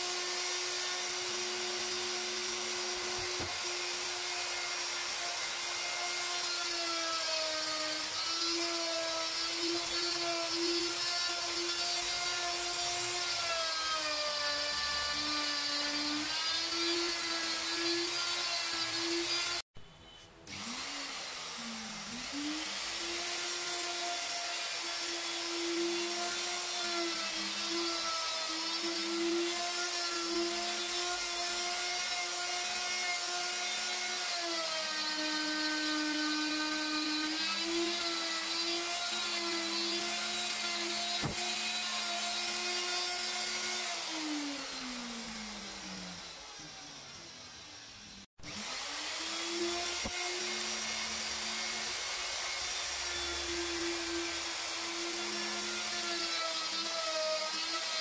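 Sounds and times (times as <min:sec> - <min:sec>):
electric router whining: 0:00.0 - 0:19.6, 0:20.5 - 0:58.0.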